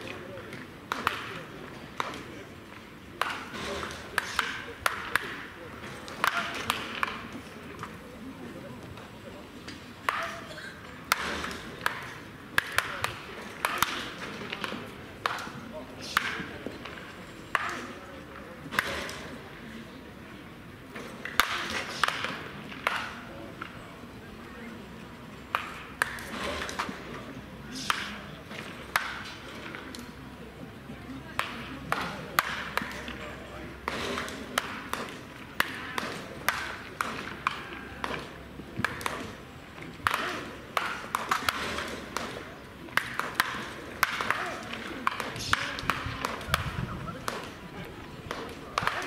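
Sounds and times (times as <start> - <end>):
bats cracking baseballs: 0.0 - 49.0
voices chattering: 0.0 - 49.0.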